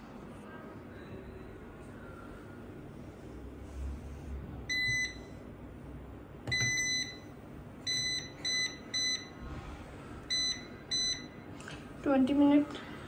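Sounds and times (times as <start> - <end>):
washing machine high beeps: 4.7 - 5.4, 6.5 - 9.4, 10.3 - 11.5.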